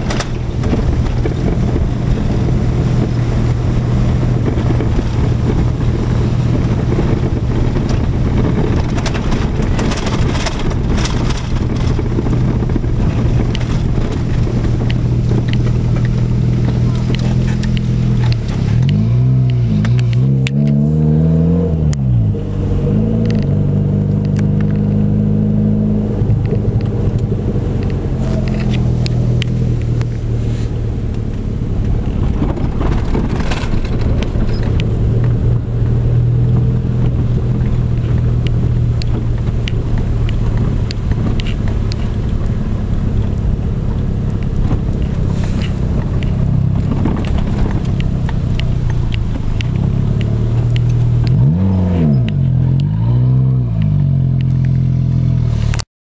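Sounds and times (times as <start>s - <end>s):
car engine drone: 0.0s - 55.9s
faint clicks: 43.9s - 51.4s.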